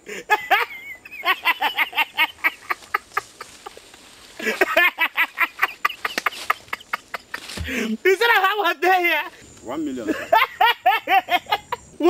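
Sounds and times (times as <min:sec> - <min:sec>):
man cackling laughter: 0:00.0 - 0:03.8, 0:04.4 - 0:08.1, 0:10.1 - 0:11.8.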